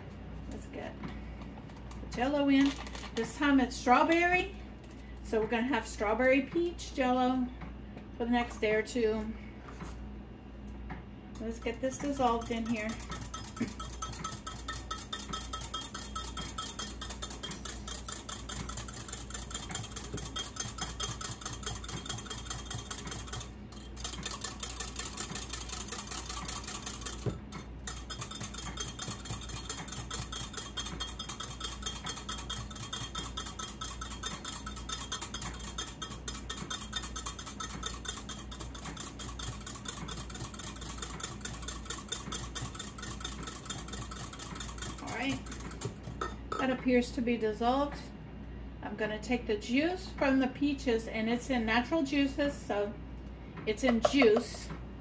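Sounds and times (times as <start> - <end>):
whisk beating against bowl: 11.4 - 46.7, 53.8 - 54.7.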